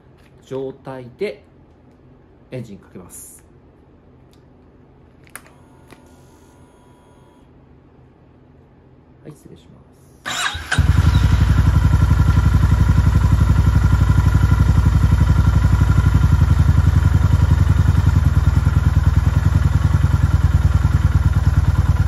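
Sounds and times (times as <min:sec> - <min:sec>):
motorcycle engine idling: 0:10.3 - 0:22.0.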